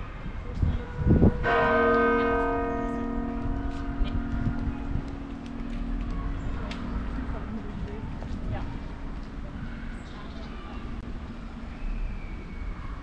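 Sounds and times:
large church bell ringing: 0:00.9 - 0:08.2.

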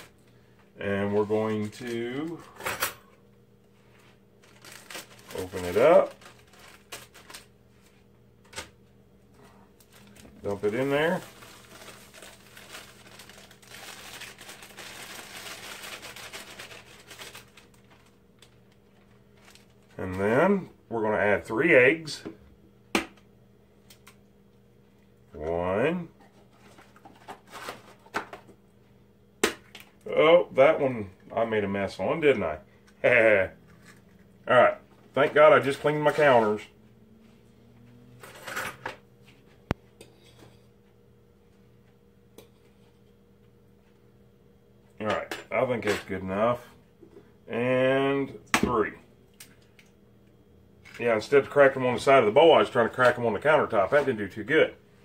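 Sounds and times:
plastic bag crinkling: 0:04.4 - 0:07.6, 0:09.8 - 0:20.0
kitchen handling rustle: 0:26.2 - 0:28.5.

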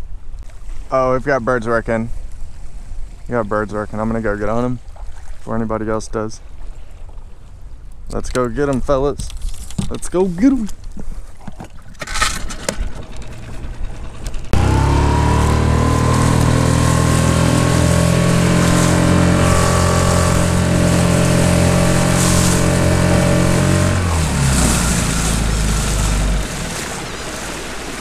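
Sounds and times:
wind: 0:00.0 - 0:28.0
outboard motor drone: 0:11.6 - 0:28.0
water rushing: 0:12.3 - 0:28.0.

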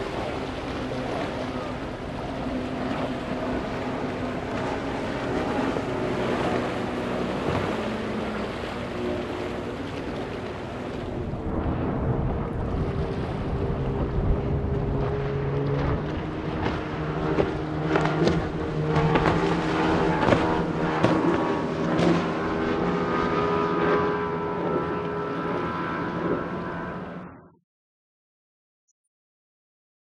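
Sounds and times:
wind buffeting microphone: 0:00.0 - 0:23.6
hull splashing on waves: 0:00.0 - 0:27.1
water rushing: 0:00.0 - 0:27.2
outboard motor running: 0:00.0 - 0:27.4.

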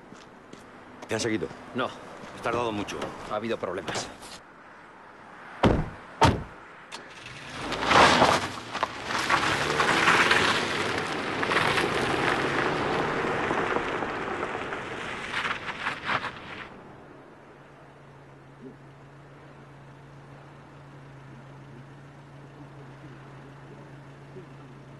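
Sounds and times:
vehicle running: 0:00.0 - 0:24.9
heavy thuds: 0:05.6 - 0:06.6.

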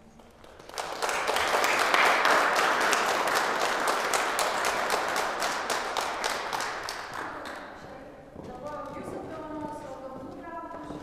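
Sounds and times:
audience applauding: 0:00.1 - 0:07.8.

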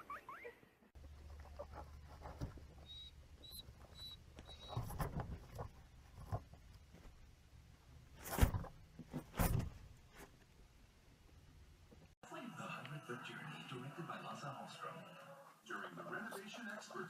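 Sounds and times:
guinea pigs rustling in bedding: 0:01.0 - 0:07.3
rustling thumps: 0:01.0 - 0:10.6
faint high squeaks: 0:02.7 - 0:05.1.

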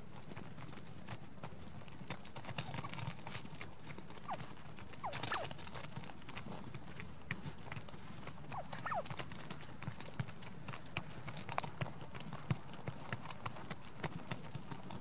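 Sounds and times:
turkeys pecking taps and clicks: 0:00.8 - 0:15.0
turkey calls: 0:04.2 - 0:04.4, 0:05.0 - 0:05.6, 0:08.5 - 0:09.2.

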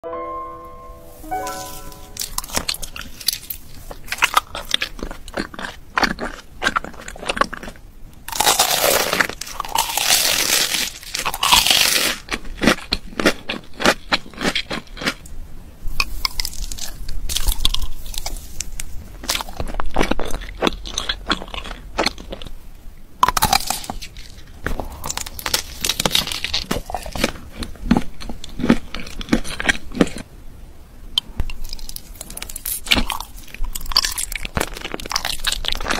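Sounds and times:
person chewing crunchy food: 0:02.2 - 0:15.3, 0:15.9 - 0:22.6, 0:23.2 - 0:30.3, 0:31.2 - 0:35.9.

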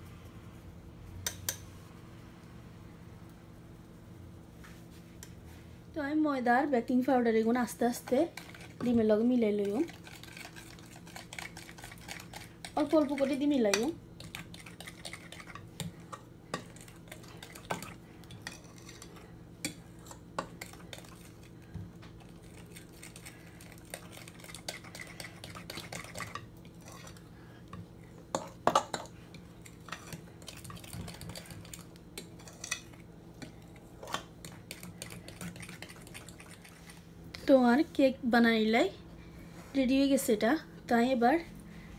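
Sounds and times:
steady low hum: 0:00.0 - 0:41.9
metal spoon stirring in bowl: 0:07.9 - 0:21.6, 0:22.2 - 0:37.0.

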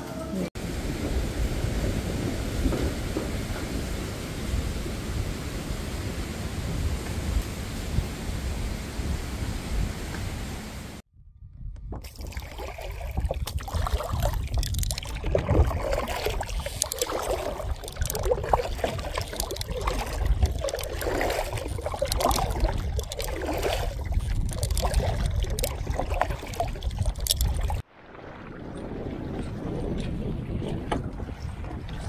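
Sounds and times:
wind rumbling on microphone: 0:00.6 - 0:32.0
paddle splashing in water: 0:12.0 - 0:32.0
water lapping against hull: 0:12.0 - 0:32.0.

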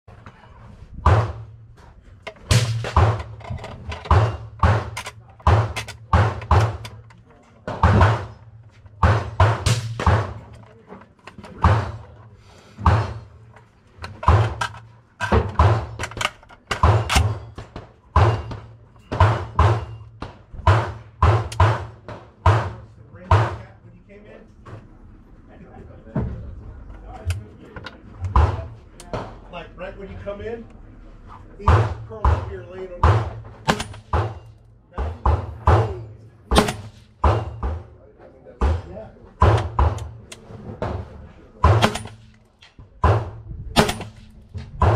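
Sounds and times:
gunshots with short echo: 0:02.4 - 0:03.4, 0:04.1 - 0:07.0, 0:07.7 - 0:10.5, 0:11.5 - 0:12.2, 0:35.1 - 0:37.9, 0:43.0 - 0:44.9.

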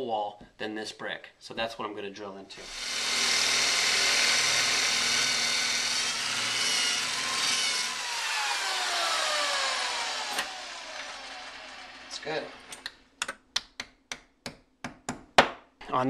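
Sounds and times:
drill motor winding down: 0:02.6 - 0:12.9
electric drill boring into brick: 0:02.6 - 0:12.9.

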